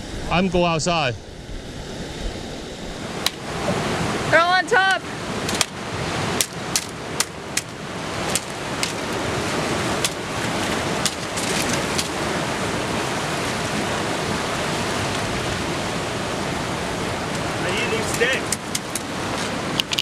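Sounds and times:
surf washing: 0.0s - 20.0s
sticks cracking on a boulder: 5.5s - 5.8s, 6.4s - 9.2s, 10.0s - 12.2s, 18.1s - 20.0s.

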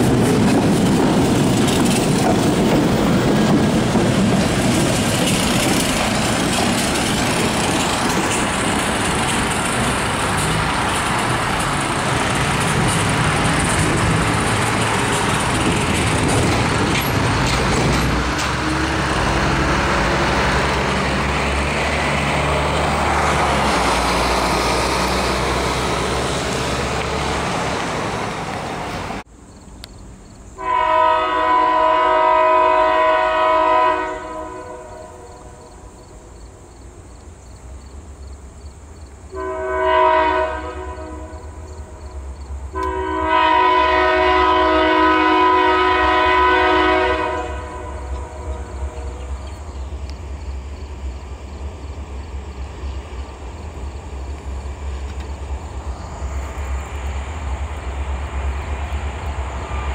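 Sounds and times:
diesel engine rumble: 0.0s - 29.3s
locomotive air horn: 18.5s - 19.9s, 30.6s - 35.6s, 39.3s - 41.5s, 42.7s - 49.3s.

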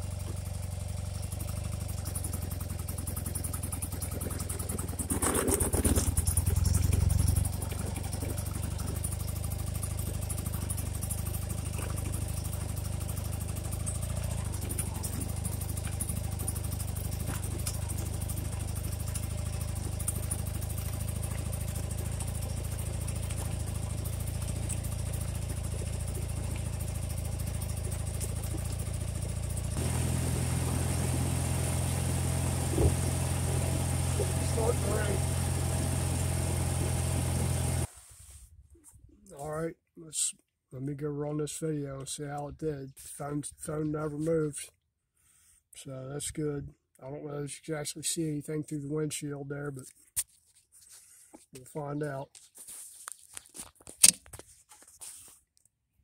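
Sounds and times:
motorcycle engine running: 0.0s - 37.9s.

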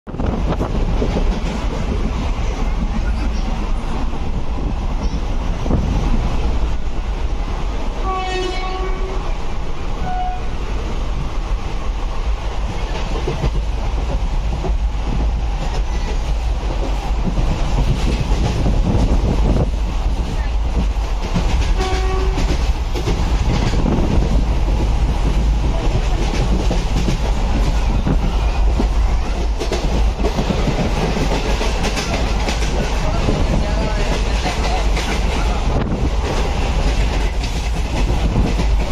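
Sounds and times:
train rumble and wheel clatter: 0.0s - 38.9s
train horn: 8.0s - 9.3s, 10.0s - 10.6s, 21.7s - 22.6s.

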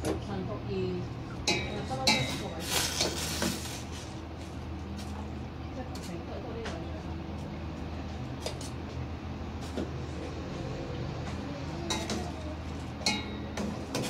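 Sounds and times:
metal utensil clinking against pot: 1.4s - 3.2s, 13.0s - 14.0s.

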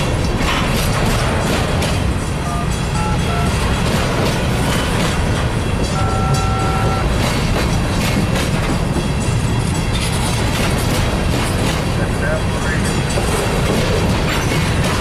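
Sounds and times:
train wheels rumbling on rails: 0.0s - 15.0s
wheels clicking over rail joints: 0.0s - 15.0s.

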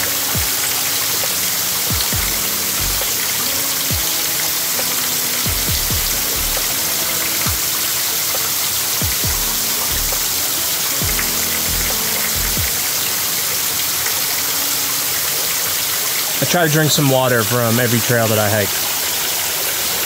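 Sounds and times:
rushing water: 0.0s - 20.0s
music with sliding bass hits: 1.9s - 3.3s, 4.8s - 7.7s, 9.0s - 12.8s.

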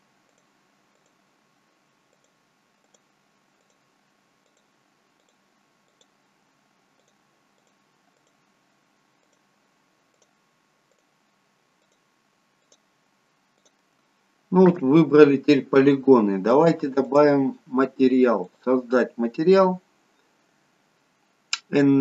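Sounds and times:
computer mouse clicks: 0.2s - 1.2s, 2.1s - 3.8s, 4.4s - 6.2s, 7.0s - 8.4s, 9.2s - 9.5s, 10.1s - 11.1s, 11.8s - 12.9s, 13.6s - 13.9s.

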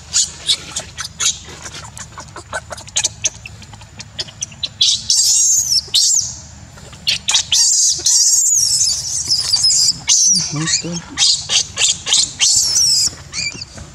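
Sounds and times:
baby monkey screaming: 0.0s - 13.8s.

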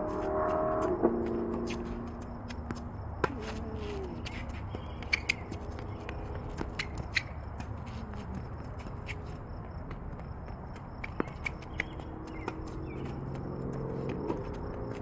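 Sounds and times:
shoe squeaks: 0.0s - 9.6s, 10.7s - 15.0s
running footsteps: 0.0s - 15.0s
tennis ball bounces: 0.8s - 7.7s, 10.2s - 15.0s.

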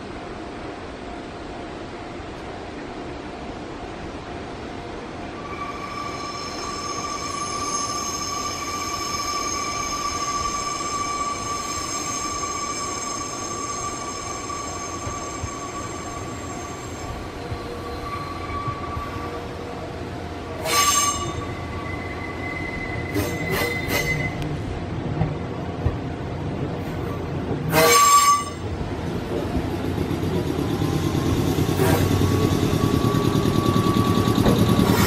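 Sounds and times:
train running rumble: 0.0s - 35.0s
train wheels squealing: 5.4s - 20.0s, 20.6s - 24.5s, 27.7s - 28.7s, 29.7s - 35.0s
loud wheel screech: 20.6s - 24.4s.

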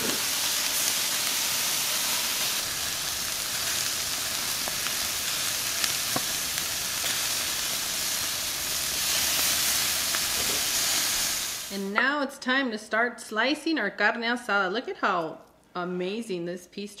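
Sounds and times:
meat sizzling on a grill: 0.0s - 11.7s.

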